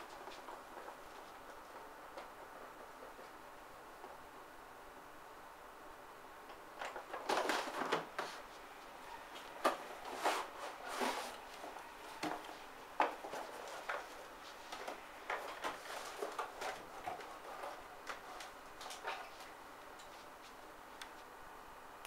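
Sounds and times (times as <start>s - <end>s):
packaging rustling and scraping: 6.8s - 8.6s, 9.3s - 20.5s.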